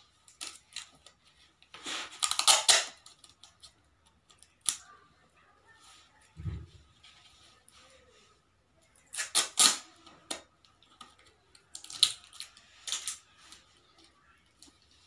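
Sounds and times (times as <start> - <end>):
scissors snipping tape: 2.2 - 3.0, 9.1 - 10.4.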